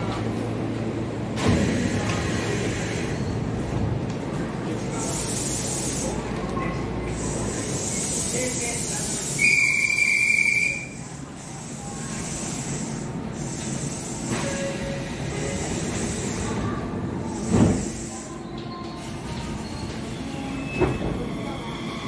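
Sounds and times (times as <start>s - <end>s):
high brake squeal: 9.3s - 11.0s.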